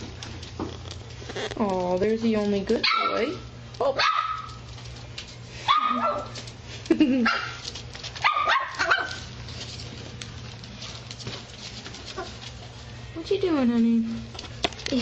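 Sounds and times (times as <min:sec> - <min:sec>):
puppy yipping barks: 0:02.8 - 0:04.6, 0:05.6 - 0:06.4, 0:08.2 - 0:09.3.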